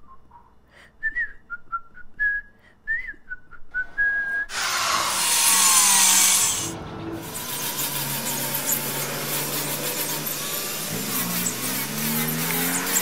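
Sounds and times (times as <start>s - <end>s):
power tool grinding: 4.5s - 13.0s.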